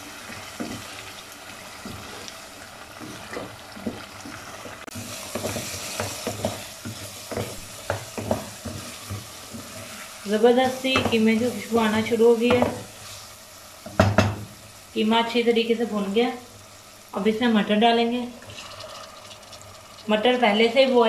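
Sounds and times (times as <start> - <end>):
meat sizzling in oil: 0.0 - 21.0
wooden spatula scraping pot: 3.0 - 10.1.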